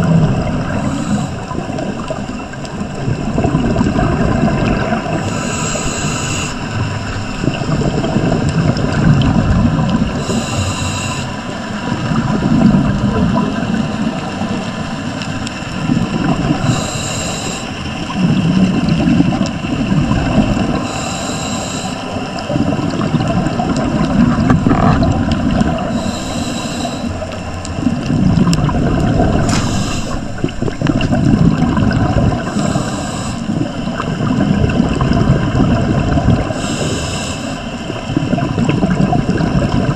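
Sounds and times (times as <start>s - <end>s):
exhaled bubbles rumbling: 0.0s - 39.9s
regulator inhale hiss: 0.6s - 2.2s, 5.2s - 6.9s, 10.1s - 11.7s, 16.5s - 17.9s, 20.8s - 22.4s, 25.7s - 27.4s, 29.3s - 30.4s, 32.4s - 34.0s, 36.4s - 37.9s.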